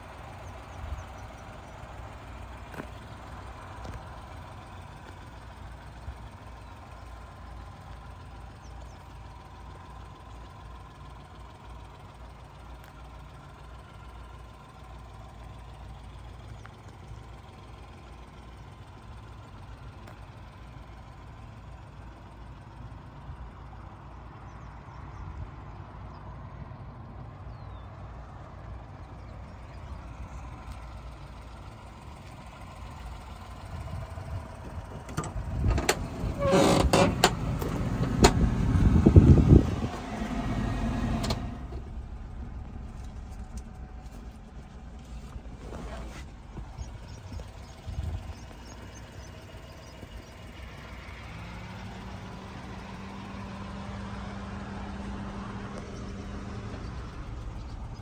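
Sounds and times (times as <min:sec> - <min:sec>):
truck engine idling: 0:00.0 - 0:58.0
steady low hum: 0:37.4 - 0:49.6.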